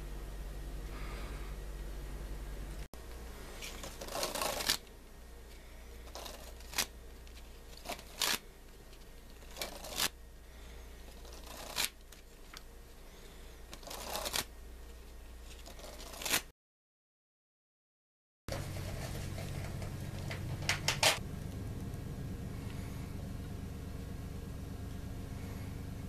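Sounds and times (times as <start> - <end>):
steady low hum: 0.0 - 16.4, 18.5 - 26.0
playing cards riffling: 3.6 - 4.9, 6.1 - 10.2, 11.1 - 12.6, 13.7 - 14.5, 15.4 - 16.5.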